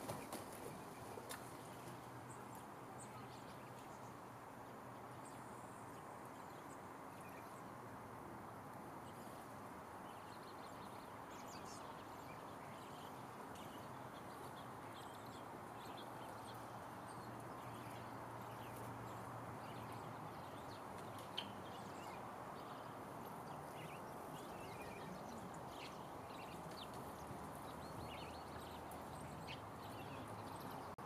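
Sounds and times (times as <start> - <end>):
faint background hiss: 0.0 - 31.0
small birds chirping: 9.0 - 31.0.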